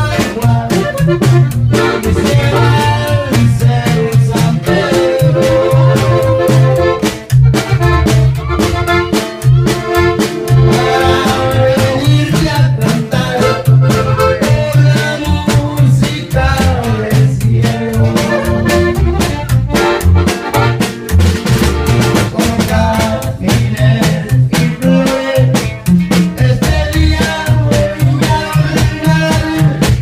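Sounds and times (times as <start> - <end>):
button accordion melody: 0.0 - 30.0
drum kit beat: 0.0 - 30.0
plucked upright bass: 0.0 - 30.0.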